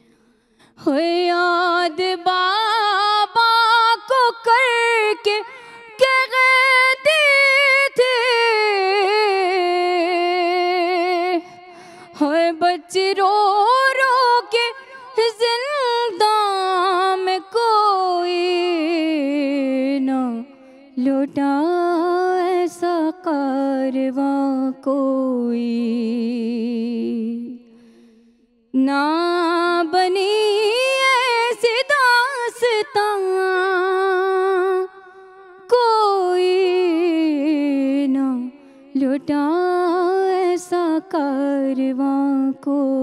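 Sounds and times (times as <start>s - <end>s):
woman singing lament: 0.7s - 27.7s, 28.7s - 43.0s.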